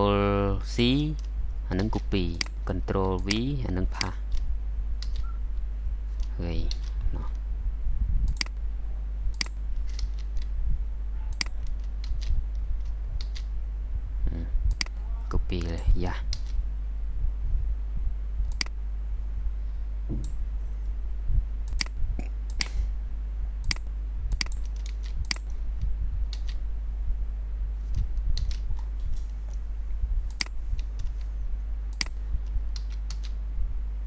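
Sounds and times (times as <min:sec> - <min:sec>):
low electrical hum: 0:00.0 - 0:34.0
mouse and keyboard clicks: 0:05.0 - 0:05.3, 0:09.4 - 0:10.5, 0:11.3 - 0:13.5, 0:21.7 - 0:22.8, 0:23.7 - 0:25.5.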